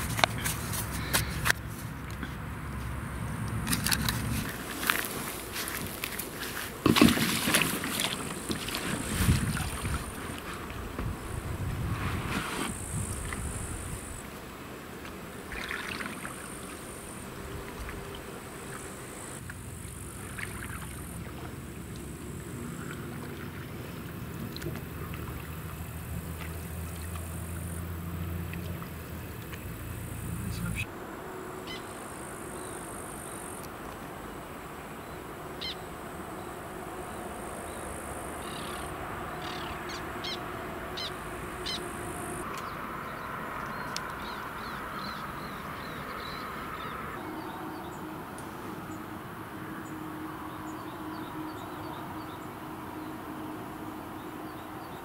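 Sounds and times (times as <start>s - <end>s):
boat being paddled: 0.0s - 55.0s
birds calling sharply: 38.4s - 42.8s.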